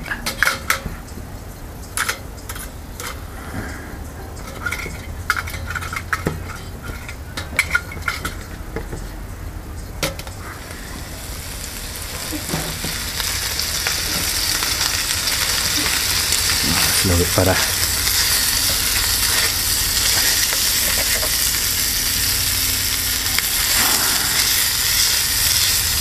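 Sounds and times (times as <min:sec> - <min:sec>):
bacon sizzling in a pan: 0:10.5 - 0:26.0.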